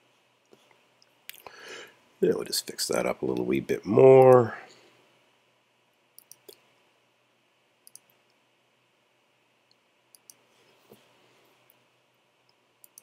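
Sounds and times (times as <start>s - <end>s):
computer mouse clicks: 6.2s - 6.6s, 7.8s - 8.4s, 9.7s - 10.4s, 12.5s - 13.0s.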